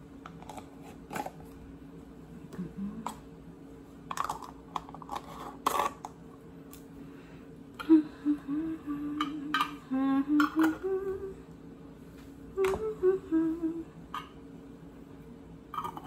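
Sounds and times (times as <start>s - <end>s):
woman humming: 2.4s - 3.3s, 7.8s - 11.6s, 12.5s - 14.3s.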